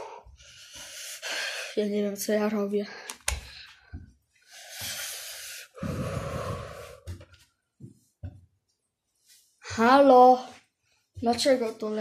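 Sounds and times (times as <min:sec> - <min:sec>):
person breathing heavily: 0:00.0 - 0:02.0, 0:02.8 - 0:07.3.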